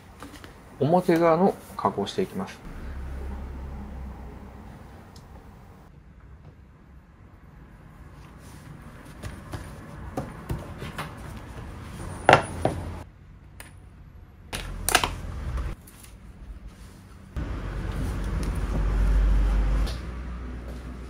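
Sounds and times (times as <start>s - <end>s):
steady machine noise: 2.7s - 5.9s.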